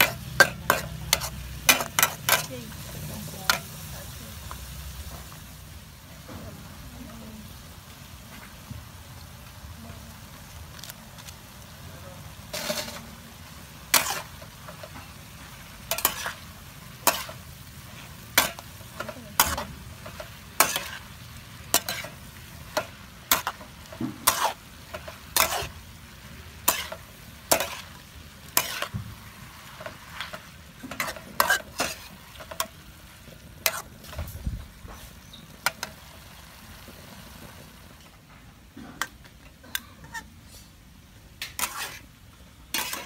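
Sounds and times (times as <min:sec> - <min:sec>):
metal utensils scraping a wok: 0:00.0 - 0:05.4, 0:12.3 - 0:36.1, 0:38.8 - 0:40.8, 0:41.4 - 0:43.0
sizzle of frying: 0:00.0 - 0:43.0.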